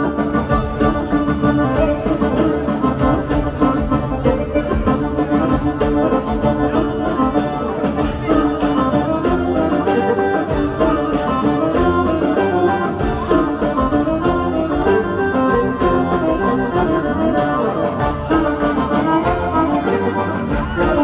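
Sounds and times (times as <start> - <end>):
accordion folk dance music: 0.0 - 21.0.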